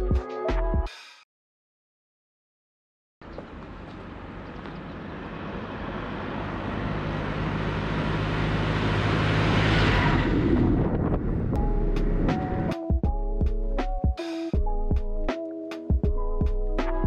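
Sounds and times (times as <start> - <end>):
tyre noise on road: 3.2 - 12.4
tractor engine hum: 3.2 - 12.8.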